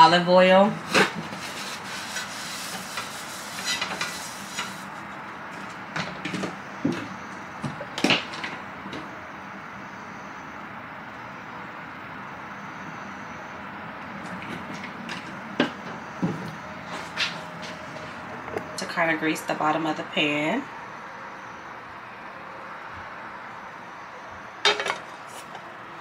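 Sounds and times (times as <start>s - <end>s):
pan and utensils knocking: 24.6s - 25.0s.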